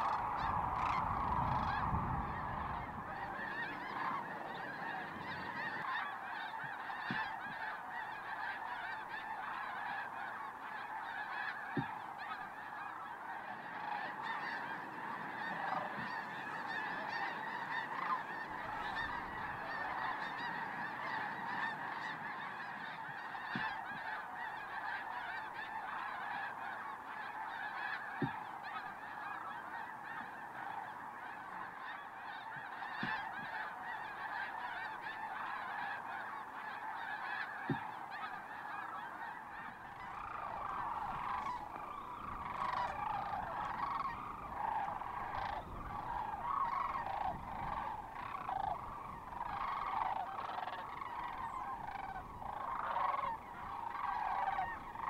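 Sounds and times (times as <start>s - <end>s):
flock of birds calling: 0.0s - 55.0s.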